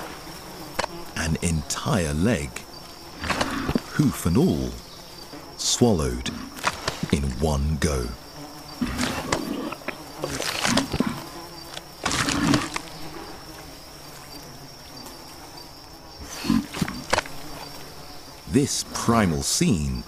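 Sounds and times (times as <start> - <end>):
high insect drone: 0.0 - 20.0
animal swallowing noises: 3.2 - 4.0, 8.8 - 12.9, 16.2 - 17.4.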